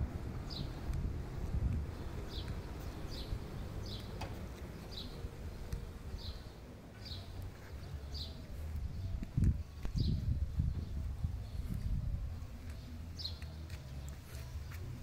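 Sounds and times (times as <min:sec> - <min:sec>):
wind rumble on microphone: 0:00.0 - 0:06.5, 0:07.9 - 0:13.3
bird chirping: 0:01.9 - 0:11.9.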